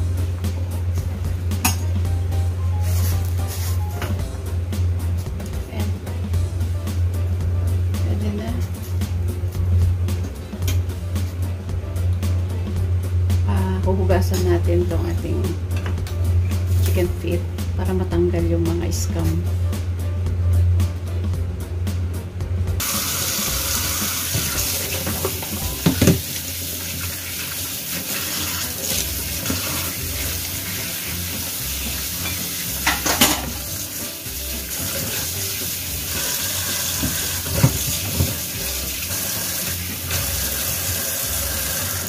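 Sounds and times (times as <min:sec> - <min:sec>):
tap running into metal sink: 0:24.2 - 0:26.4, 0:36.9 - 0:38.5.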